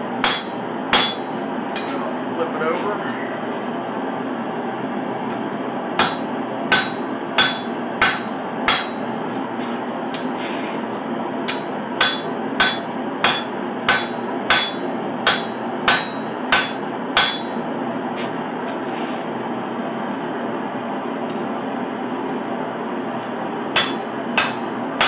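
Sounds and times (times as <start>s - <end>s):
steady background noise: 0.0s - 25.0s
hammer clanging on hot steel: 0.2s - 2.0s, 6.0s - 9.2s, 11.5s - 17.6s, 23.7s - 24.8s.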